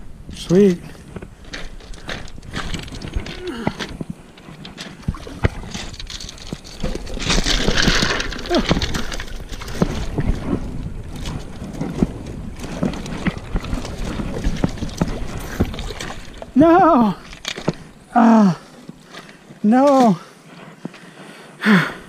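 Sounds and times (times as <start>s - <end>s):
stones and gear clicking: 0.5s - 21.1s
shallow water splashing: 2.5s - 19.2s.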